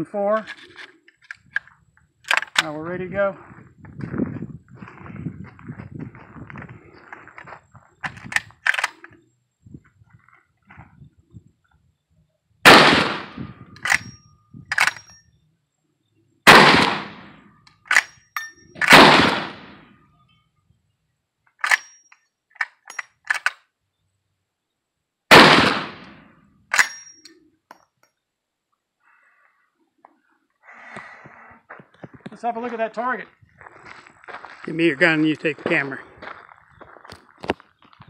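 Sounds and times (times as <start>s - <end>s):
shotgun blasts: 12.6s - 14.0s, 16.5s - 17.5s, 18.8s - 19.9s, 25.3s - 27.0s.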